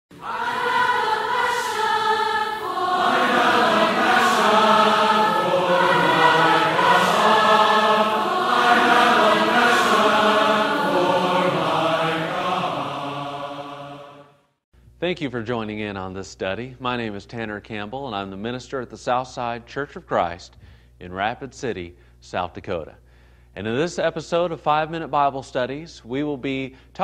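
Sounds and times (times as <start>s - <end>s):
choir singing sustained chords: 0.1s - 14.4s.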